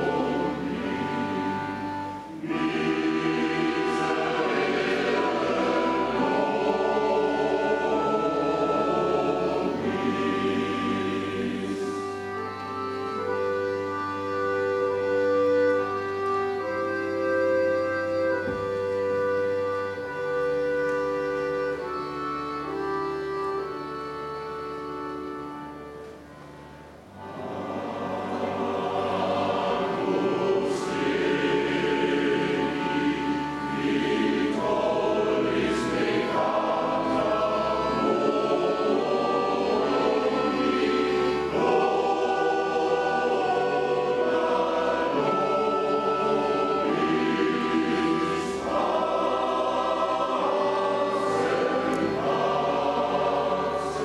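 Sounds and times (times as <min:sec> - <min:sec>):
mixed choir singing: 0:00.0 - 0:14.2, 0:27.2 - 0:54.0
accordion orchestra: 0:00.0 - 0:54.0.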